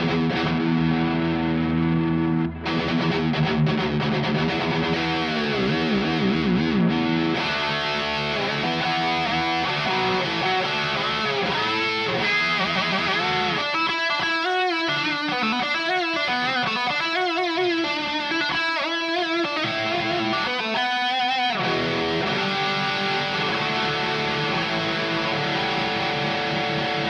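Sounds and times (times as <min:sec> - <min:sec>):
electric guitar with tremolo bends: 0:00.0 - 0:27.0.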